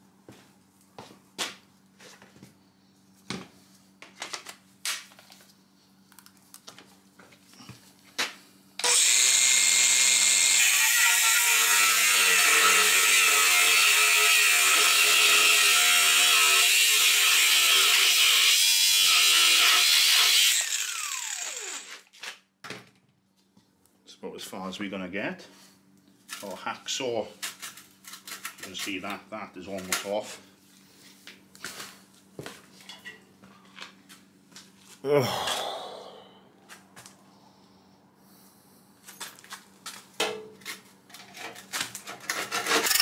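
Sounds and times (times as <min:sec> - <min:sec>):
angle grinder cutting metal: 0:08.8 - 0:22.1, 0:42.4 - 0:43.0
grinder disc winding down: 0:20.5 - 0:22.0.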